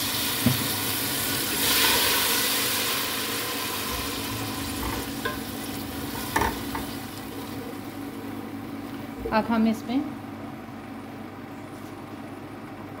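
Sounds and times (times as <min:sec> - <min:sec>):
onions sizzling in oil: 0:00.0 - 0:08.2.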